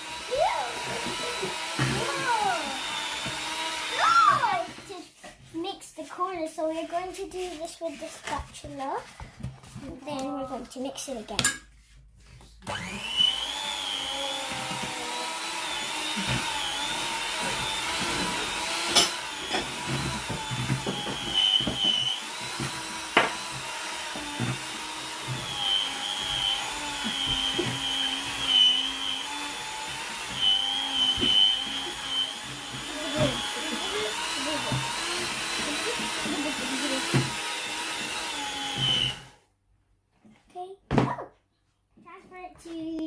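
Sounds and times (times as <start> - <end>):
electric hand mixer whine: 0.0 - 5.3, 12.6 - 39.5.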